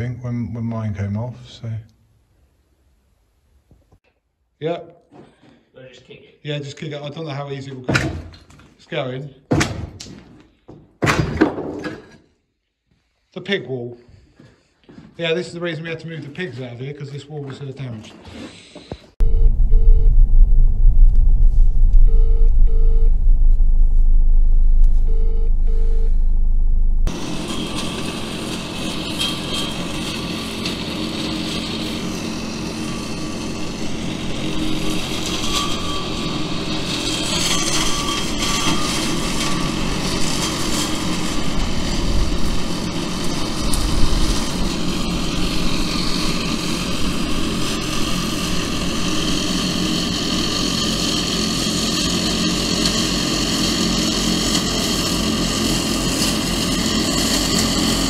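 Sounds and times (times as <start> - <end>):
tractor engine: 19.2 - 57.8.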